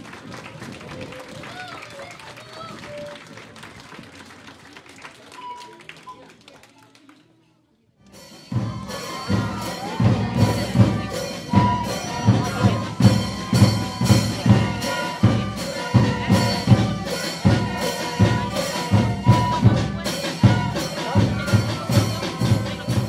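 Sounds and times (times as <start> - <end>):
steady drum beat: 8.2 - 23.0.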